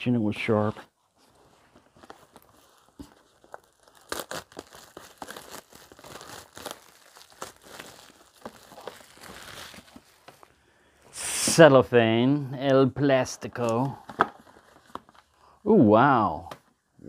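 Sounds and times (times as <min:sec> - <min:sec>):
cellophane wrap tearing and crinkling: 0:02.0 - 0:10.5.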